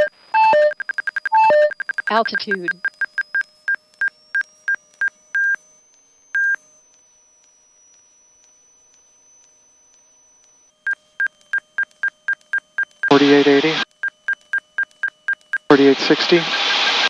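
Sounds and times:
stall warning beeps: 0.0 - 5.6, 6.3 - 6.6, 10.6 - 17.0.

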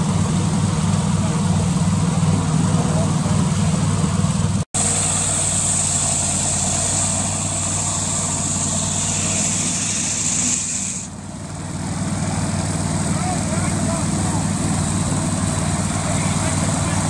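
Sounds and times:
ice saw engine running: 0.0 - 17.0
saw blade hissing through ice: 4.8 - 11.2.

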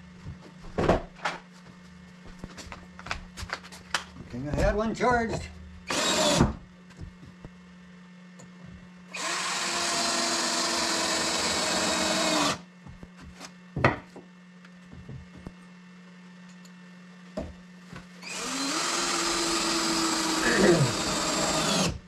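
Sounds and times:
cordless drill running: 5.8 - 6.5, 9.1 - 12.6, 18.2 - 22.0.

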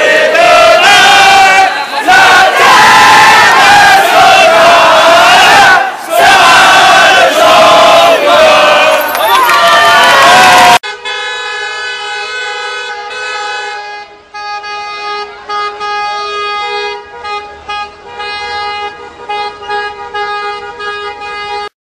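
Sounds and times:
car horns honking: 10.8 - 21.7.

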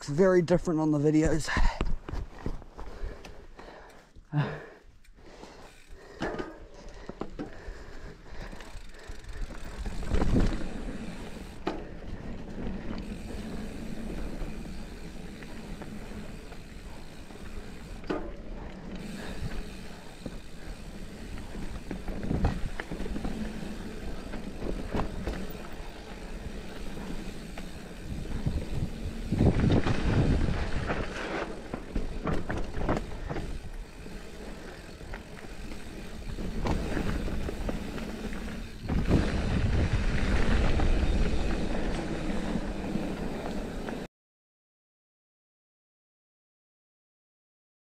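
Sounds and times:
bike tyres rolling over dirt: 0.0 - 44.1
bike knocking and rattling: 5.6 - 44.1
wind on microphone: 28.1 - 31.0.

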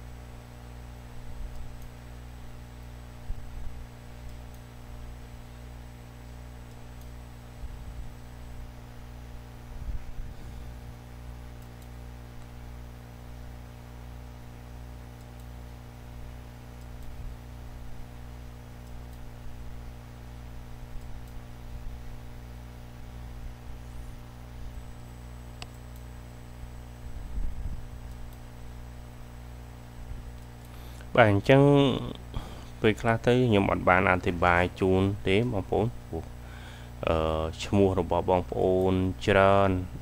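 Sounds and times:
electrical mains hum: 0.0 - 40.0
faint click: 25.6 - 26.1.

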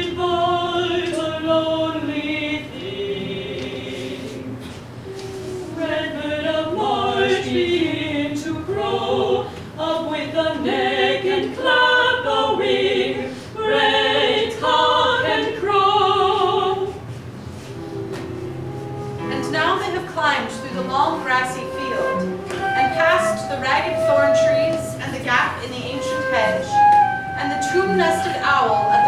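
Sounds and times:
group singing unaccompanied: 0.0 - 17.0, 26.0 - 29.0.

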